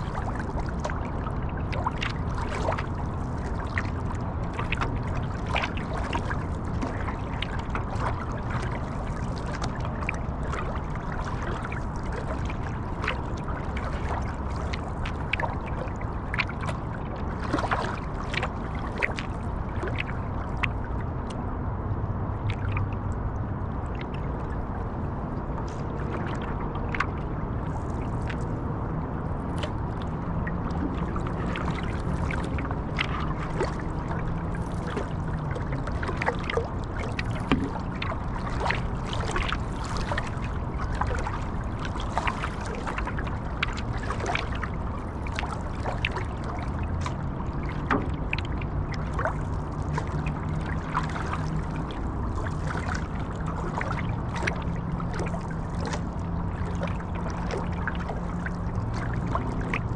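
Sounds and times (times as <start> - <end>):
water lapping around paddle board: 0.0 - 59.9.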